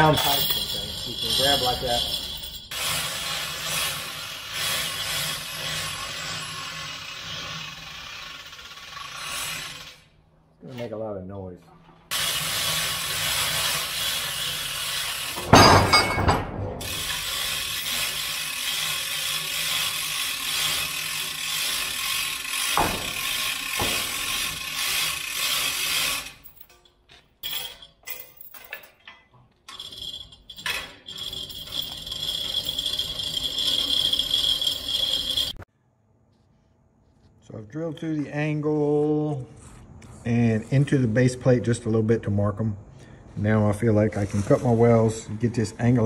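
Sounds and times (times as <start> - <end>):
hoist chain rattling: 0.0 - 10.1, 12.1 - 35.6
ratchet clicking: 0.2 - 10.1, 16.9 - 28.0, 29.7 - 35.6
metal clank: 15.4 - 16.8, 22.8 - 24.5.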